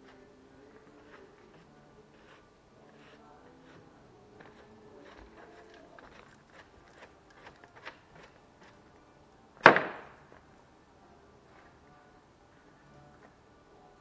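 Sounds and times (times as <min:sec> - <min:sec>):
loud sharp bang on hard surface: 0:09.6 - 0:10.2.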